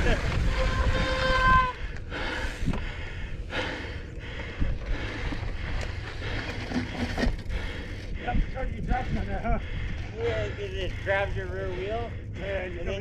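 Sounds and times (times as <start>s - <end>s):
wind on microphone: 0.0s - 2.9s
tyres rumbling on dirt trail: 0.0s - 13.0s
person breathing hard: 1.7s - 12.4s.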